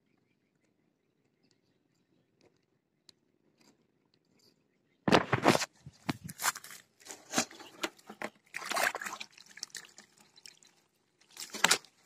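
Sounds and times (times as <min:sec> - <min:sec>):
water splashing and dripping: 0:06.4 - 0:12.0.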